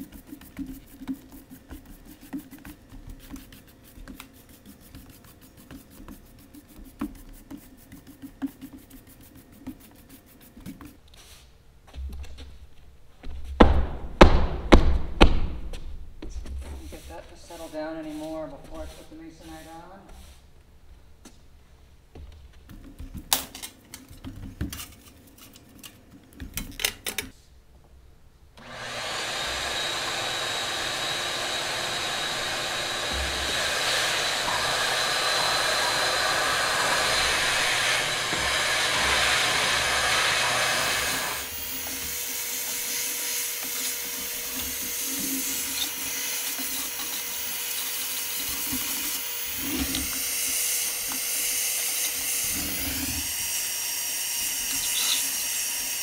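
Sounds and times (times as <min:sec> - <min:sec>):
push broom scraping wooden floor: 0:16.7 - 0:20.4, 0:28.6 - 0:51.3, 0:52.2 - 0:53.3
steady whine: 0:28.6 - 0:41.6
shop vacuum running: 0:28.6 - 0:56.0.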